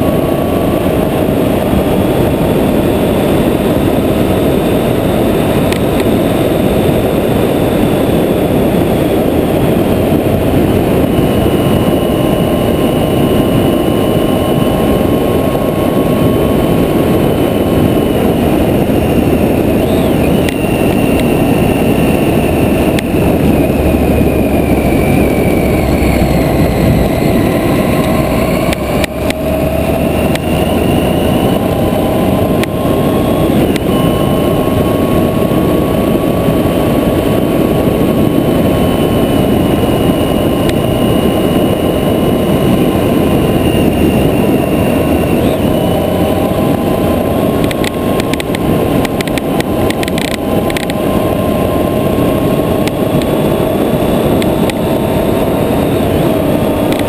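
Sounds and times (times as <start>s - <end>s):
wind rushing: 0.0s - 57.0s
motorcycle engine cruising: 13.7s - 37.9s
small clicks: 47.6s - 51.0s.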